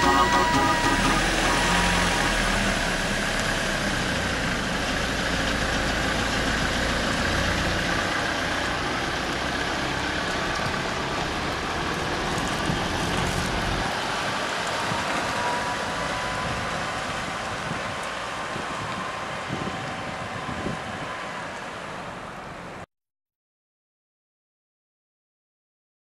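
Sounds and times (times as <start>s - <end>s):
electronic music: 0.0s - 3.2s
minibus engine idling: 0.0s - 14.6s, 16.9s - 22.8s.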